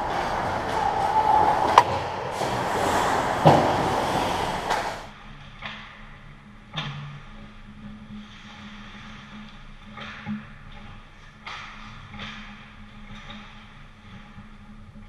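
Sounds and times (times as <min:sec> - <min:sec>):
stick and puck clacks: 0:00.0 - 0:05.0, 0:08.8 - 0:14.4
skates scraping ice: 0:00.0 - 0:05.1.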